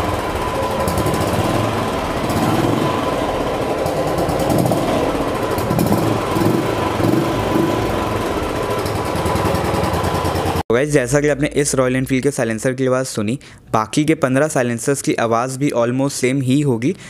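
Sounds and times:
motorcycle engine running: 0.0s - 10.6s.

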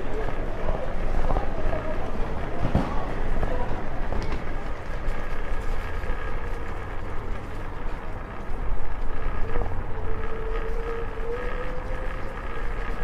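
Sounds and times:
scooter wheels and wind rumble: 0.0s - 13.0s
thin motor whine: 4.8s - 13.0s.

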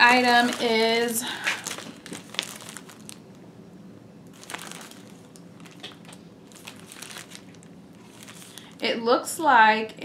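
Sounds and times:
plastic packaging crinkling: 0.0s - 3.4s, 4.3s - 8.8s.

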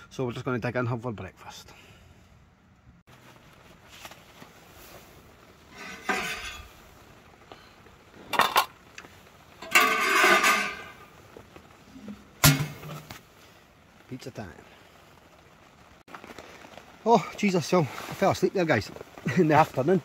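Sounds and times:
utensils clinking against pans: 5.7s - 6.7s, 9.6s - 11.0s, 12.4s - 13.1s.

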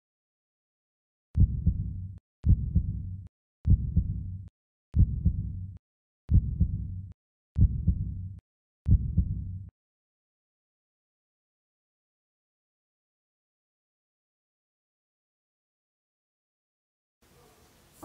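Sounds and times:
heartbeat thumps: 1.4s - 3.1s, 3.7s - 4.4s, 5.0s - 5.6s, 6.3s - 7.0s, 7.6s - 8.2s, 8.9s - 9.6s.

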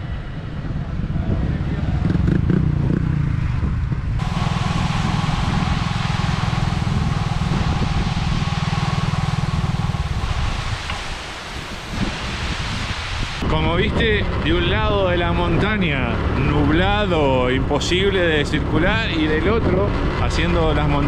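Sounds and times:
scooter engine pulsing: 4.0s - 12.0s
wind hiss on microphone: 4.1s - 15.3s.

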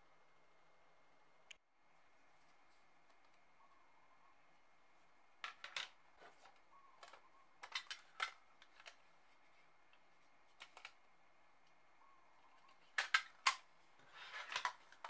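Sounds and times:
plastic and metal cases clicking: 5.4s - 9.0s, 12.7s - 15.0s.

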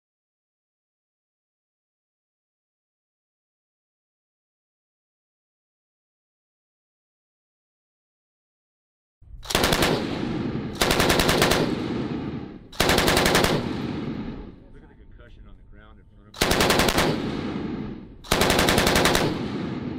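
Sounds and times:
machine gun bursts: 9.5s - 10.0s, 10.8s - 11.8s, 12.8s - 13.8s, 16.4s - 17.3s, 18.2s - 19.5s.

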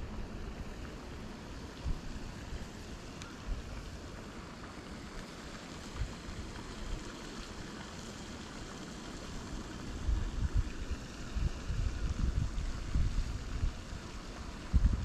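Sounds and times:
steady hiss: 0.0s - 15.0s
wind rumbling on microphone: 1.7s - 4.1s, 9.5s - 15.0s.

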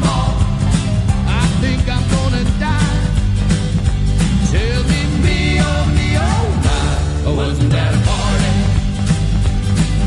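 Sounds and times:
music with steady beat: 0.0s - 10.0s
person singing: 4.4s - 9.0s.

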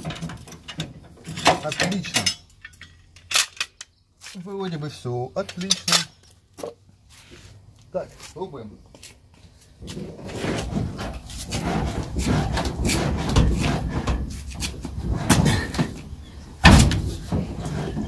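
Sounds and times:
loud thump: 16.6s - 17.5s
knocks and thuds from car body: 16.6s - 18.0s.

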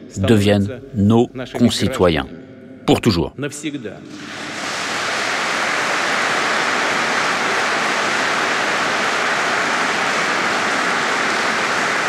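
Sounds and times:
large audience applauding: 4.2s - 12.0s.

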